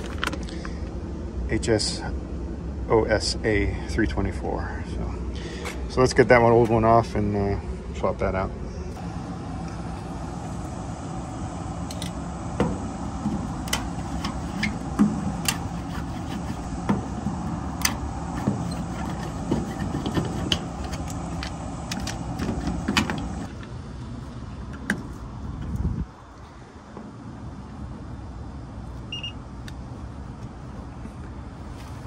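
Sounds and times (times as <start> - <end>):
machinery drone: 0.0 - 25.5.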